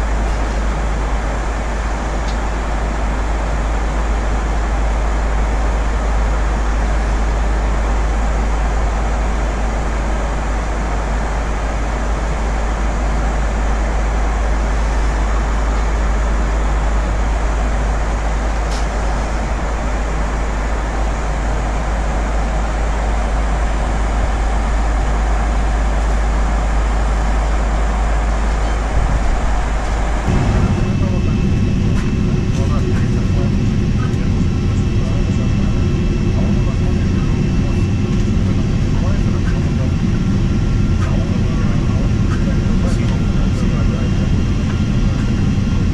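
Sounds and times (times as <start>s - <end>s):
airliner cabin noise: 0.0s - 45.9s.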